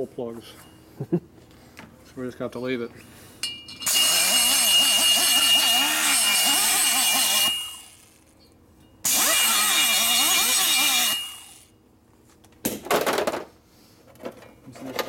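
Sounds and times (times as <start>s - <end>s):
die grinder cutting metal: 3.8s - 8.3s, 9.0s - 11.7s.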